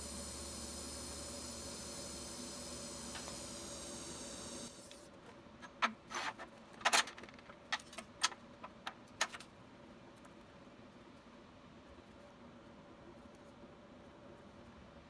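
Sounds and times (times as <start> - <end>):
welding arc buzzing hiss: 0.0 - 5.1.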